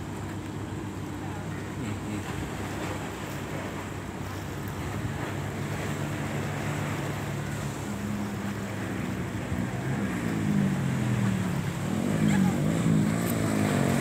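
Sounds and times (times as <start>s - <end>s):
low drone of ship engines: 0.0s - 14.0s
waves washing on rocks: 0.0s - 14.0s.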